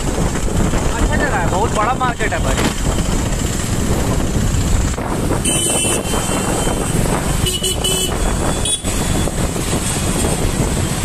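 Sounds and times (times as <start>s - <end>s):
motorbike rumble and wind noise: 0.0s - 11.0s
vehicle horn honks: 5.4s - 9.1s.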